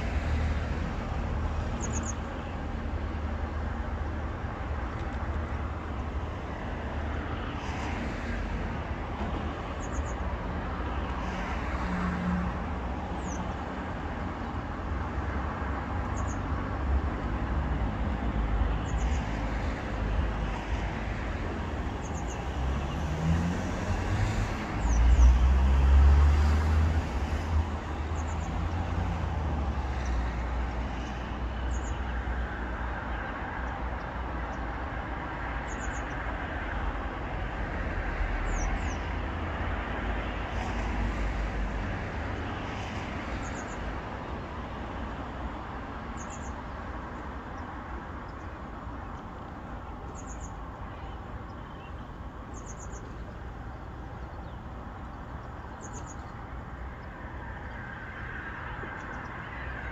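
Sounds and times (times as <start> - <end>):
traffic rumble: 0.0 - 59.9
bird chirping: 1.8 - 2.2, 46.2 - 46.6, 50.1 - 53.5, 55.4 - 56.4.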